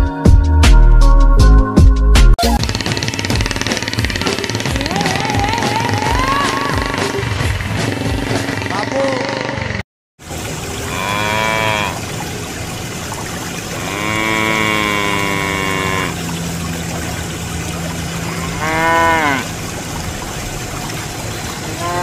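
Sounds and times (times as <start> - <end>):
water pouring into a basin: 10.2 - 22.0
cow mooing: 10.8 - 12.0, 13.8 - 16.3, 18.2 - 19.6, 21.8 - 22.0.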